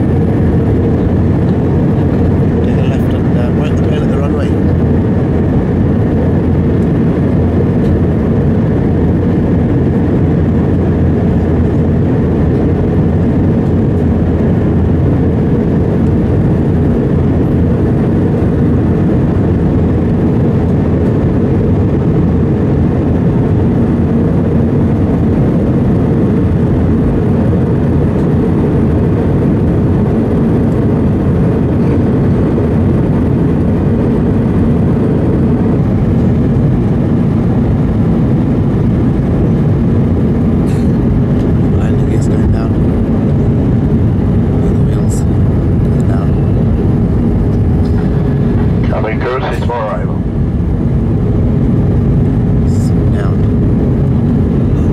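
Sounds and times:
airplane cabin drone: 0.0 - 54.9
faint steady hum: 34.5 - 54.9.

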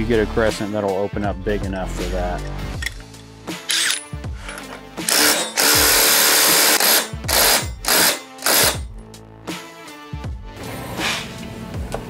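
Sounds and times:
background music: 0.0 - 12.0
impact driver bursts: 3.7 - 9.0.

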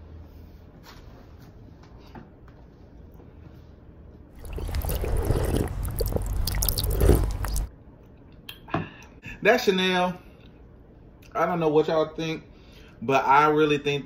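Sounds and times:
person gulping and swallowing: 4.4 - 7.7.

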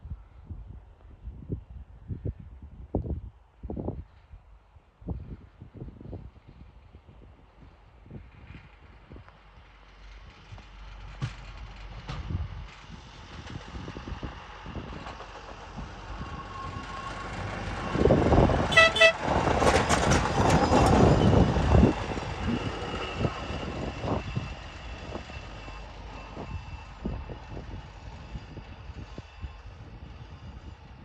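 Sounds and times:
rail truck running on rails: 6.0 - 31.0
horn toots: 18.7 - 19.2.

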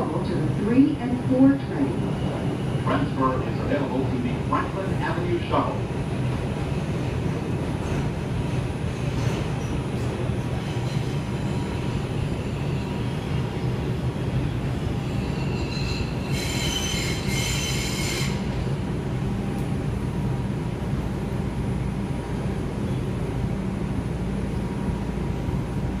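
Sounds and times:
subway wheels rumbling: 0.0 - 26.0
high squeal: 15.0 - 18.4.

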